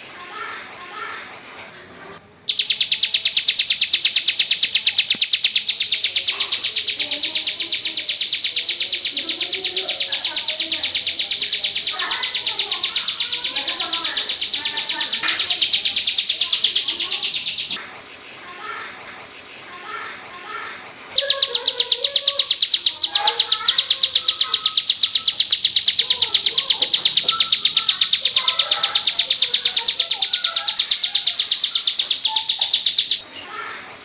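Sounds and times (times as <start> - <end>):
bird calling in sharp high chirps: 2.5 - 17.8, 21.2 - 33.2.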